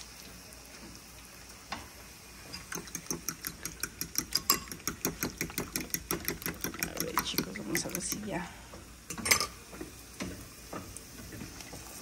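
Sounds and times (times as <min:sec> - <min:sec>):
utensil stirring in a pot: 0:01.6 - 0:12.0
fast taps against a pot: 0:02.6 - 0:08.4.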